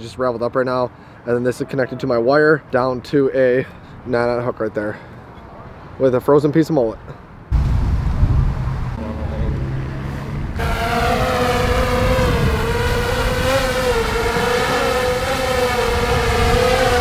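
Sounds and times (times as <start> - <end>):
wind rumble on microphone: 7.5 - 17.0
drone propellers whining: 8.9 - 17.0.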